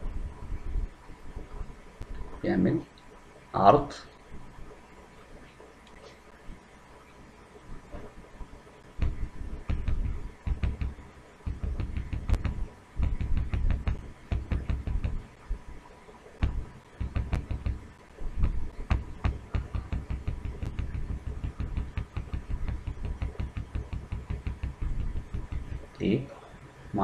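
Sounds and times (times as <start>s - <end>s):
dull thumps: 9.0s - 15.6s, 16.4s - 26.2s.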